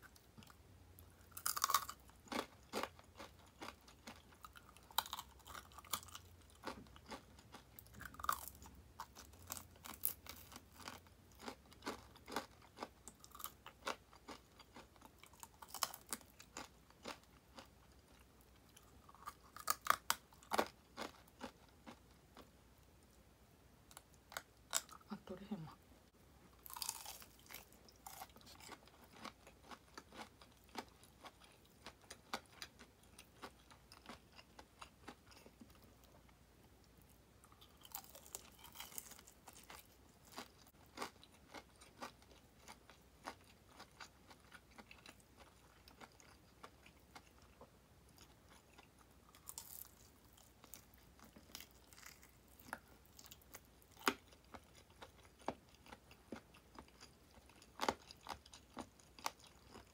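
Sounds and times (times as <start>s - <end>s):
crunching fried chicken: 1.2s - 22.5s, 26.6s - 36.1s, 37.4s - 59.9s.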